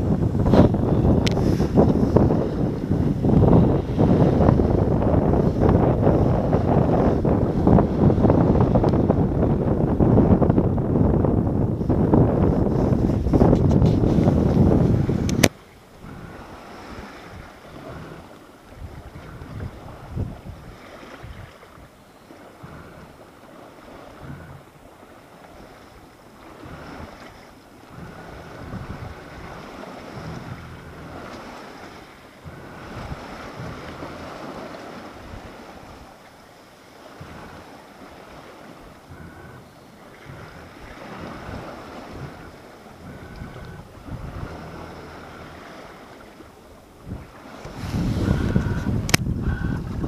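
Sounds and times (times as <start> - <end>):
water rushing along hull: 0.0 - 50.0
wind buffeting microphone: 0.0 - 50.0.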